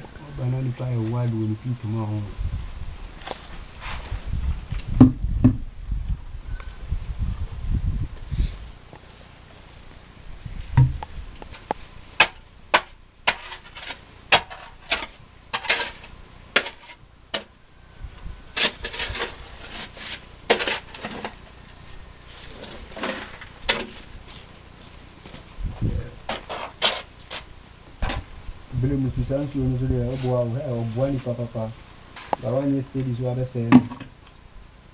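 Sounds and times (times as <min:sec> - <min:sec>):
metal tool scraping gravel: 0:11.5 - 0:17.5, 0:18.5 - 0:24.5, 0:26.2 - 0:27.5.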